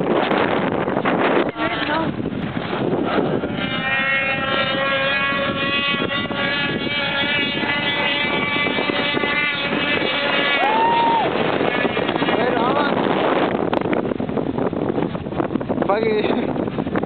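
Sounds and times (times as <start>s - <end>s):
snowmobile engines whining: 3.4s - 12.9s.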